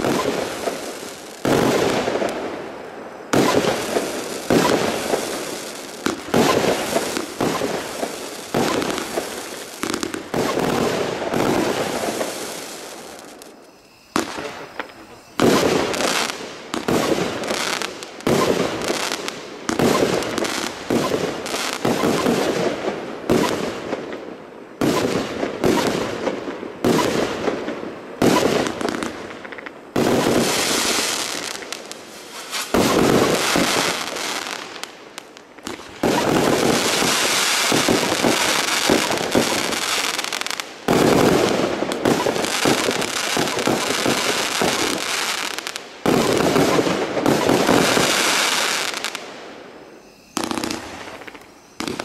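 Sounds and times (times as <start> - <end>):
firework crackling: 0.0 - 52.0
firework shells bursting: 3.3 - 23.7, 28.2 - 49.3, 50.0 - 52.0.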